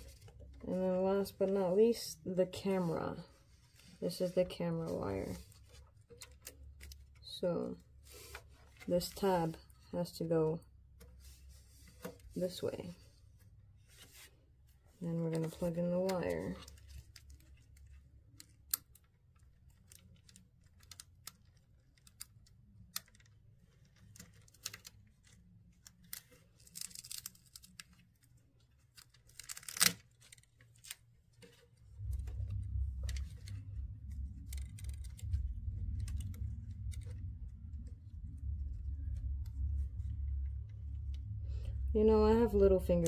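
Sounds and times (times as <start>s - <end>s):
low rumble: 31.7s - 43.0s.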